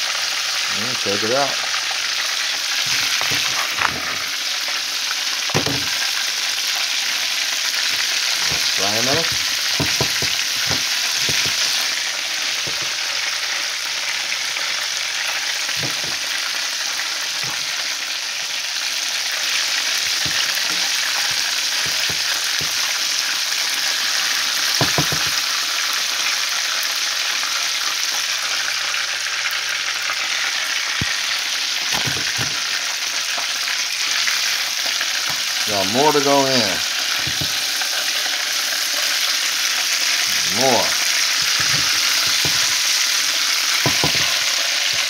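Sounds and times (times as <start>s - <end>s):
chicken frying in hot oil: 0.0s - 45.0s
utensils knocking on pan: 2.8s - 4.3s, 5.5s - 6.1s, 7.8s - 12.0s, 12.6s - 13.1s, 15.7s - 16.4s, 17.4s - 17.8s, 20.0s - 23.0s, 24.7s - 25.5s, 31.8s - 32.7s, 35.3s - 37.7s, 40.3s - 45.0s.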